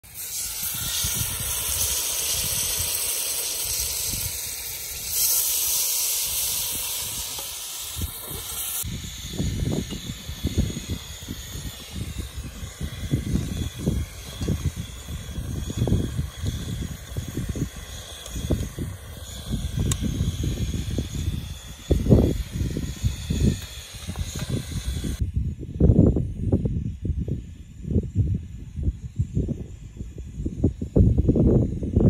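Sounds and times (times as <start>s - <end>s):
gas burner hissing: 0.0s - 25.2s
wind buffeting microphone: 0.1s - 32.0s.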